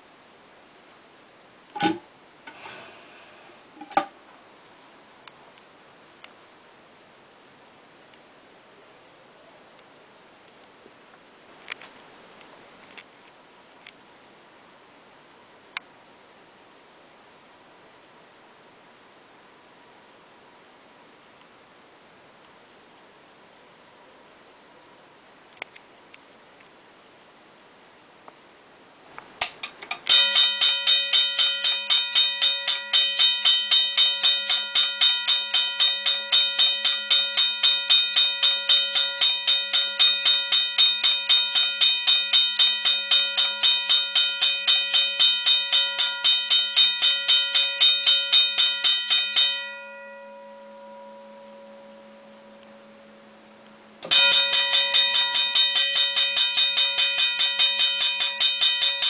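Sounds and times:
faint hum: 0:00.0 - 0:59.0
railroad crossing bell ringing: 0:30.1 - 0:59.0.

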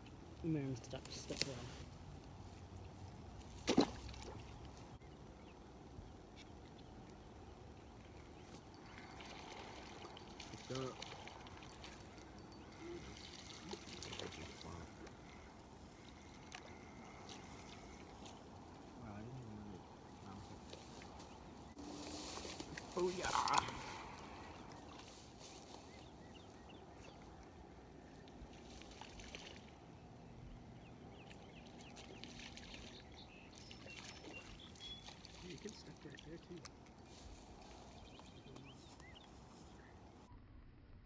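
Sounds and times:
bird chirps: 0:08.2 - 0:18.1, 0:30.8 - 0:35.6.

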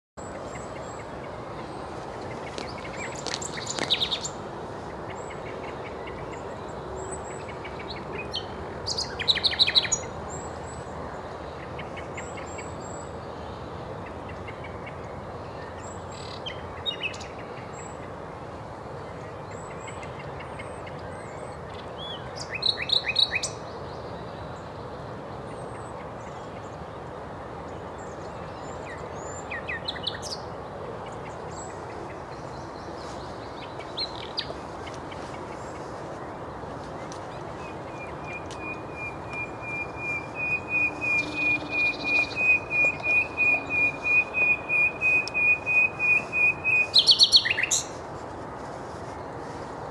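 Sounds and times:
nightingale singing: 0:00.2 - 0:04.4, 0:05.0 - 0:10.6, 0:31.1 - 0:48.0
faint high notes: 0:38.5 - 0:45.7.

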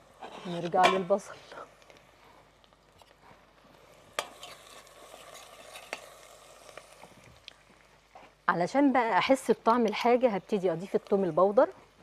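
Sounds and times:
stirring in a pot: 0:00.0 - 0:08.4
onions frying in oil: 0:03.9 - 0:12.0.

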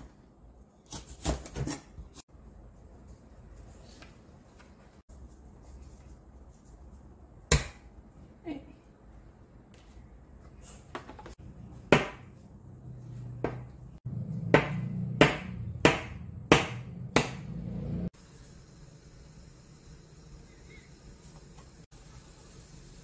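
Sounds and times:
knife chopping on cutting board: 0:11.8 - 0:12.3.

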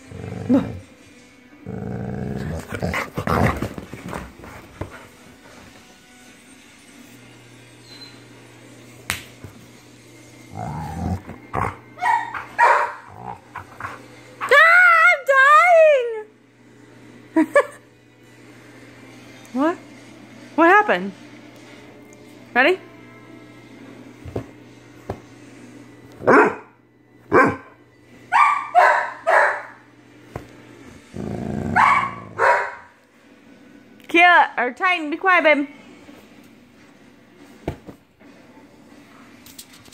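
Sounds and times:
dog play-growling: 0:00.0 - 0:05.9, 0:10.4 - 0:14.2, 0:30.8 - 0:32.4
dog barking: 0:12.0 - 0:13.4, 0:26.2 - 0:26.7, 0:27.3 - 0:29.8, 0:31.7 - 0:32.9.

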